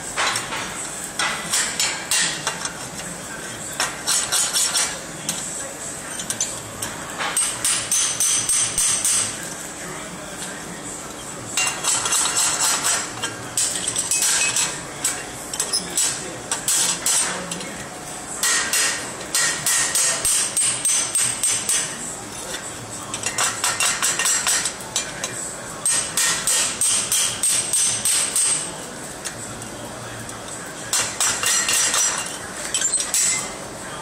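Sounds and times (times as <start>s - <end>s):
hammer ringing on hot iron: 7.2s - 9.4s, 18.4s - 22.0s.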